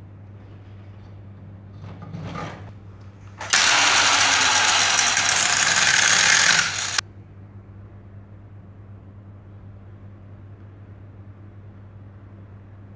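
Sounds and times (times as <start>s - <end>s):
angle grinder cutting steel: 3.4s - 7.0s
low steady hum: 7.0s - 12.9s.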